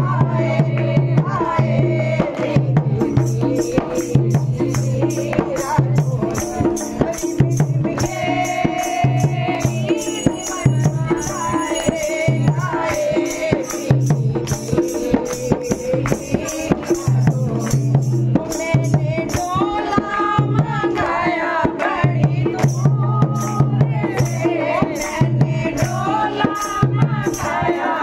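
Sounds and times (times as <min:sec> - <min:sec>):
hand drum: 0:00.0 - 0:28.0
women singing devotional song: 0:00.0 - 0:28.0
wooden clappers with jingles: 0:03.2 - 0:19.7.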